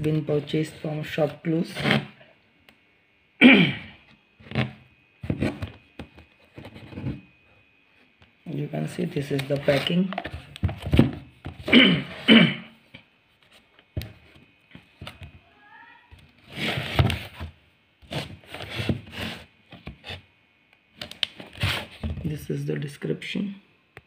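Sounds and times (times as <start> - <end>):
rustling against cardboard box: 16.4 - 20.2, 21.4 - 22.1.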